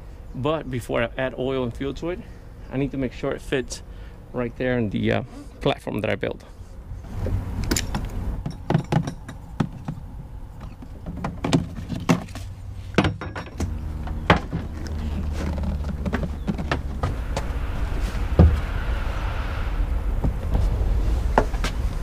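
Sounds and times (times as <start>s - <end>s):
low steady hum: 0.0s - 22.0s
generators knocking and thumping: 7.1s - 19.1s.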